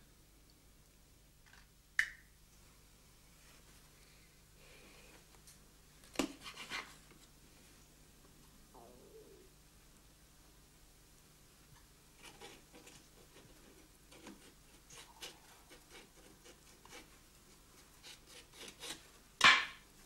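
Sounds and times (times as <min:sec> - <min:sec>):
knife scraping fish: 0:18.0 - 0:19.0.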